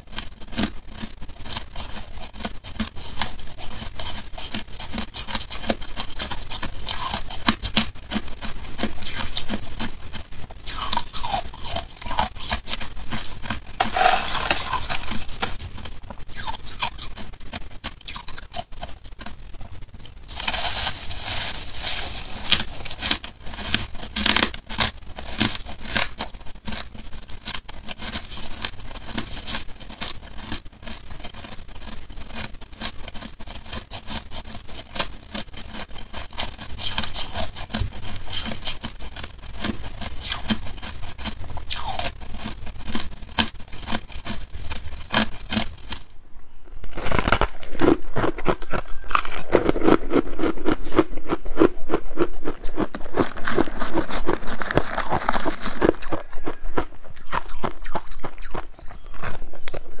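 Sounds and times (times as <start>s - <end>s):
ice being chewed: 0.0s - 46.1s, 46.7s - 60.0s.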